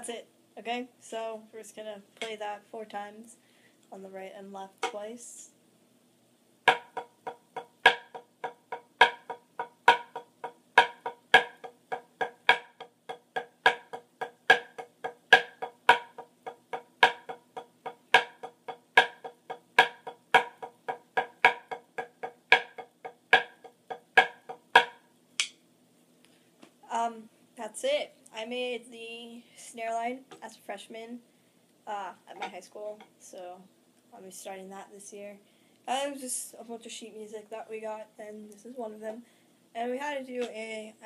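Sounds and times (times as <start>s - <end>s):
drumsticks on a practice pad: 4.8s - 5.0s, 6.6s - 25.6s.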